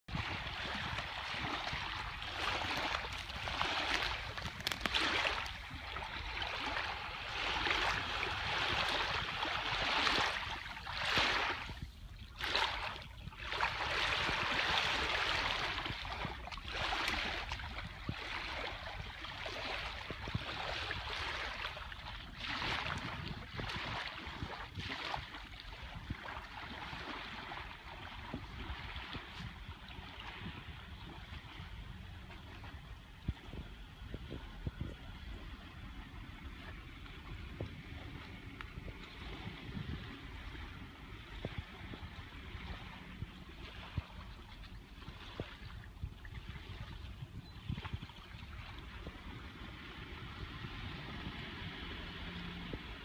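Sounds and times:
small waves lapping on shore: 0:00.1 - 0:53.0.

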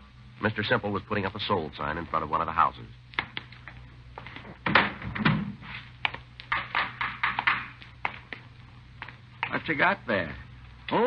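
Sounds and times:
low recording hum: 0:00.0 - 0:11.0
irregular knocks and taps: 0:06.0 - 0:09.6.

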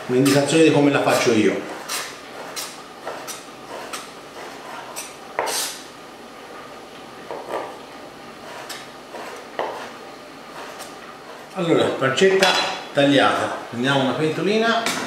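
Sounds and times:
knife cutting on wooden board: 0:01.7 - 0:05.8, 0:08.4 - 0:11.5.

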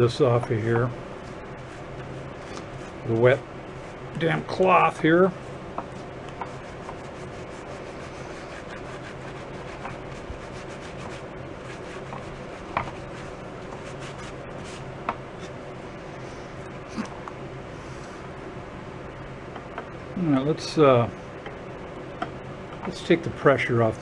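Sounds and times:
steady low hum: 0:00.0 - 0:24.0
damp cloth rubbing wood: 0:05.9 - 0:15.0.

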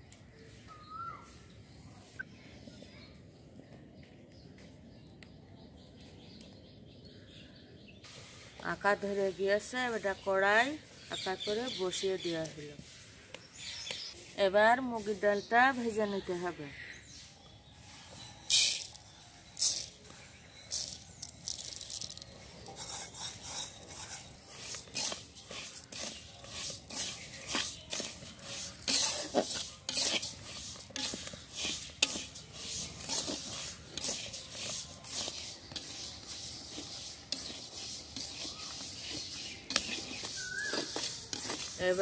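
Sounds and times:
grains rustling against metal: 0:08.0 - 0:13.7, 0:17.8 - 0:42.0
metal spatula scraping a wok: 0:22.6 - 0:42.0.

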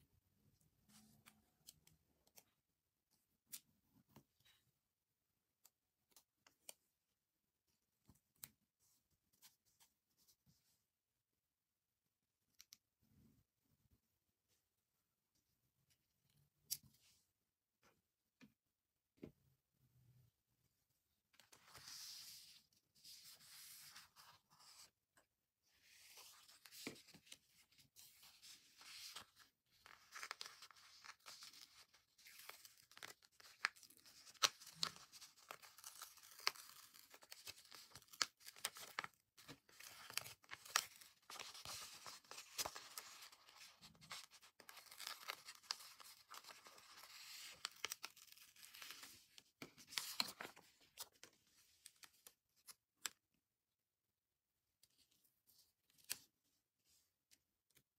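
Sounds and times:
paper sheets rustling: 0:25.8 - 0:51.3.

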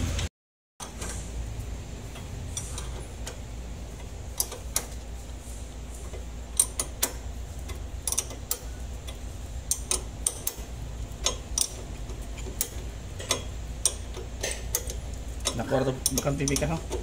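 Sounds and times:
steady low hum: 0:00.0 - 0:17.0
wrench clicking on metal: 0:04.4 - 0:05.0, 0:06.1 - 0:17.0.

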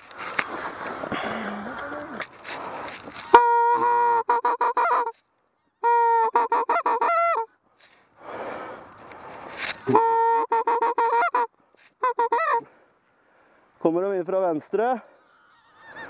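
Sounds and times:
soft rustle: 0:00.0 - 0:03.4, 0:07.7 - 0:08.2, 0:08.9 - 0:09.9
goose call honks: 0:03.3 - 0:05.2, 0:05.8 - 0:07.5, 0:09.9 - 0:12.7.

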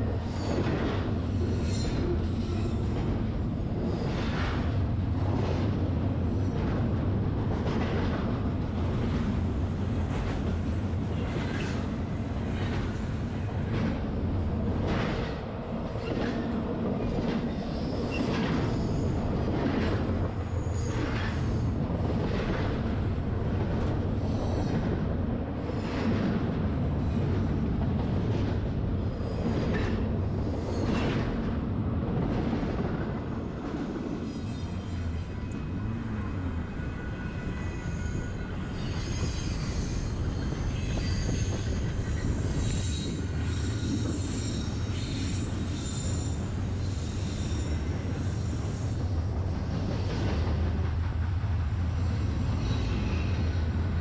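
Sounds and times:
freight train rumbling: 0:00.0 - 0:54.0
high wheel squeal: 0:36.8 - 0:49.0.

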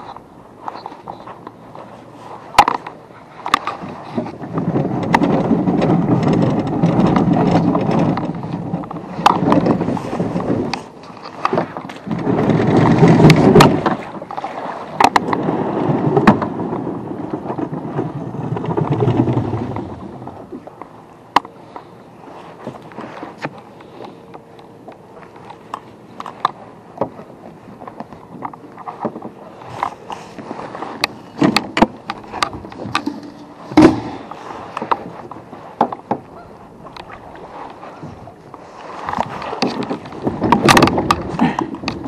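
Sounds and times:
hull scraping over concrete: 0:03.5 - 0:20.4
oars knocking: 0:25.3 - 0:42.0.

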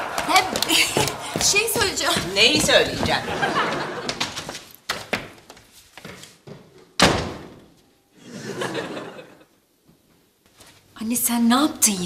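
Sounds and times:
door slamming shut: 0:07.0 - 0:07.7.

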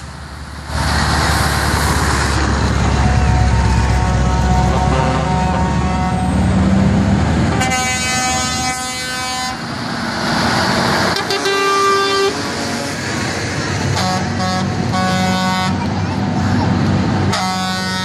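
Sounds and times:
diesel engine rumbling: 0:00.0 - 0:18.0
truck air horns blasting: 0:02.9 - 0:06.7, 0:07.5 - 0:09.7, 0:11.1 - 0:12.4, 0:13.9 - 0:15.8, 0:17.3 - 0:18.0.

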